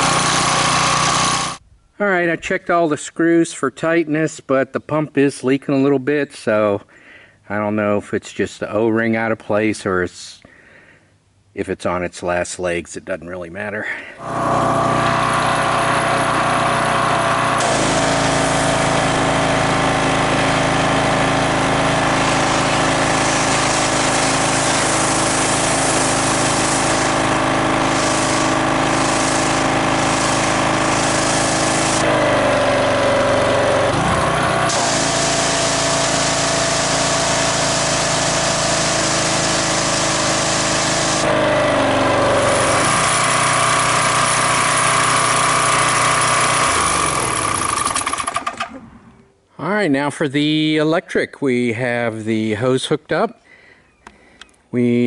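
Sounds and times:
pressure washer engine running: 0.0 - 1.6, 14.2 - 49.1
water jet hissing: 17.5 - 20.4, 21.4 - 32.2, 34.6 - 41.3.

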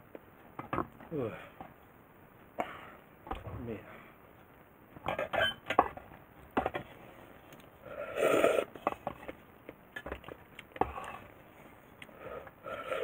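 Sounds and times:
noodle slurping: 8.0 - 8.7.

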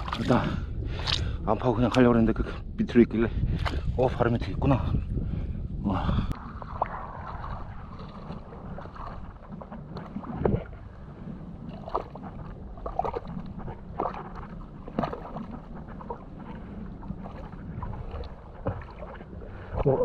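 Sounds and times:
wind rumbling on microphone: 0.0 - 20.0.

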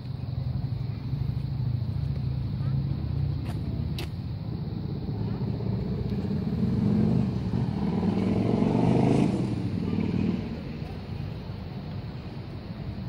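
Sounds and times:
vehicle driving past: 4.6 - 11.0.

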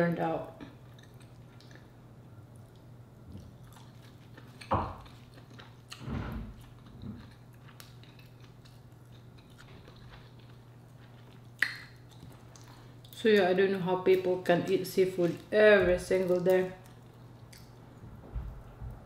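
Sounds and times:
chewing rice: 0.6 - 13.2, 16.7 - 18.0.

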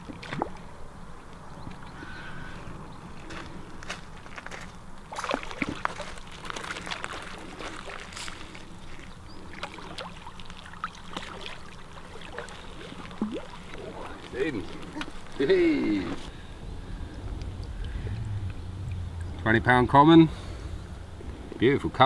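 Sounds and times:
fish splashing in water: 5.1 - 19.4.

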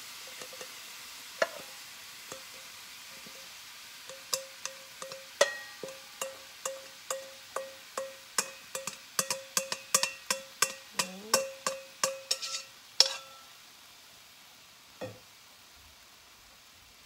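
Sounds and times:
utensil tapping ringing metal bowl: 4.1 - 13.4.

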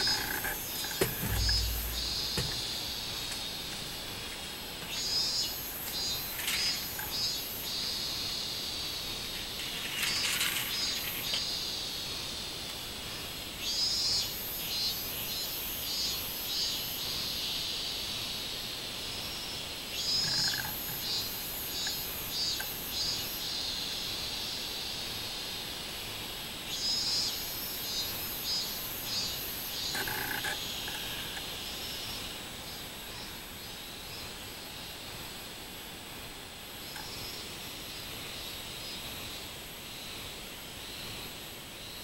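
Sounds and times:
steady high drone: 0.0 - 3.5
cicadas singing pulsed call: 0.0 - 42.0.

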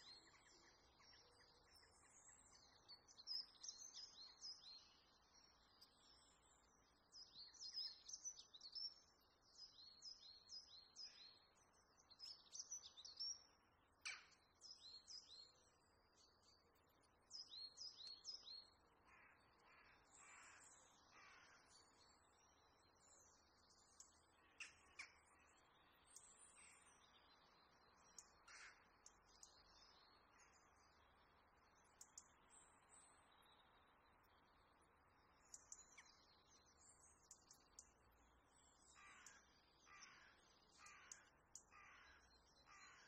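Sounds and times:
low rough bird calls: 38.9 - 43.0.

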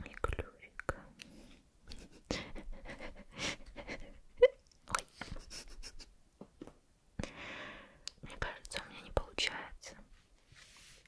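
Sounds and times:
soft breaths: 0.9 - 4.3, 7.2 - 11.0.

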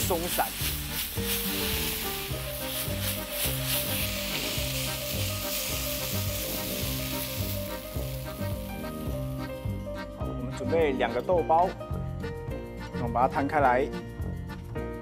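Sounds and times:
stir-fry sizzling in a wok: 0.0 - 9.4
music with walking bass: 0.0 - 15.0
spatula stirring in wok: 0.3 - 9.0.

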